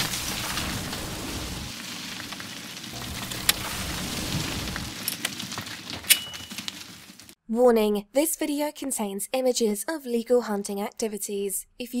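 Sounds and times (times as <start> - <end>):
crackling hiss: 0.0 - 5.7
low rumble: 3.0 - 5.0.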